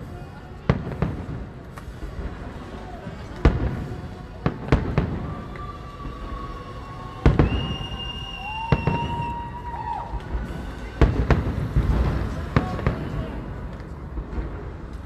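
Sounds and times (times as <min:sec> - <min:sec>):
fireworks shells bursting: 0:00.7 - 0:15.0
long steady high tones: 0:01.9 - 0:13.7.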